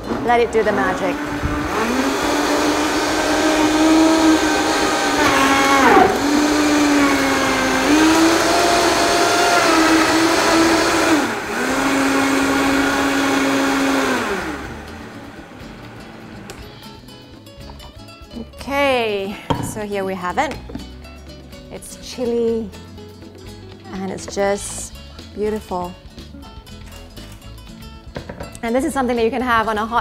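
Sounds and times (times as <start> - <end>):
blender motor running: 0.6 - 16.5.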